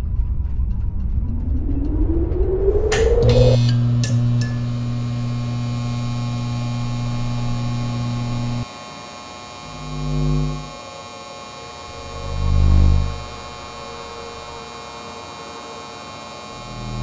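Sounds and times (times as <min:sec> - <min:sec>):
electrical hum drone: 0:00.0 - 0:17.0
low deep horn-like tone: 0:00.9 - 0:08.6, 0:11.9 - 0:14.6.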